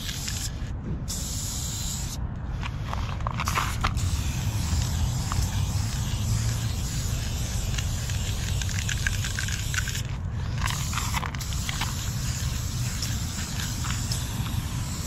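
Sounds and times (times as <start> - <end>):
steady low rumble: 0.0 - 15.0
aerosol spray can hissing: 3.5 - 15.0.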